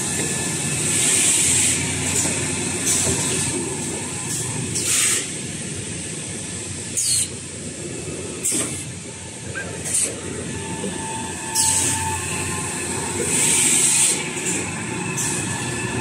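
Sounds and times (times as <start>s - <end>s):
machine and conveyor din: 0.0s - 5.5s, 9.8s - 16.0s.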